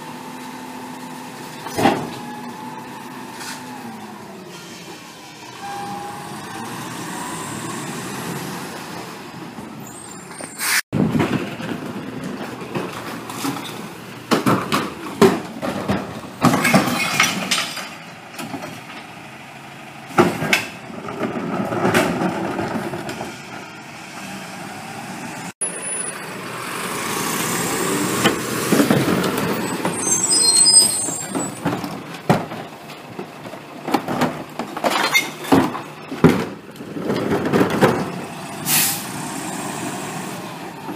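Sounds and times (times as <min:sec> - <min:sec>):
garbage truck engine running: 0:11.0 - 0:40.9
high squeal: 0:29.6 - 0:31.6
bottles and cans clattering: 0:33.9 - 0:38.1.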